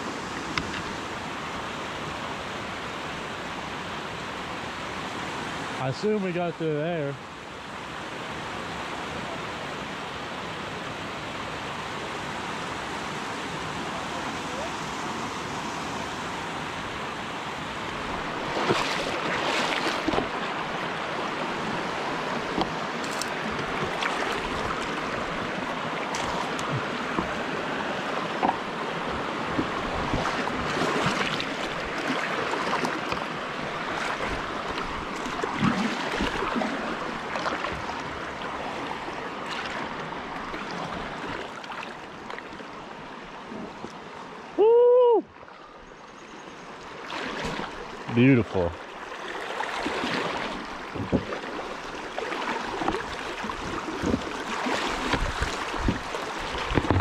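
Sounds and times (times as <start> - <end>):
river water rushing: 0.0 - 45.8, 46.6 - 57.0
sharp splashes and knocks: 18.3 - 20.8, 22.4 - 38.0, 47.0 - 47.8, 49.4 - 57.0.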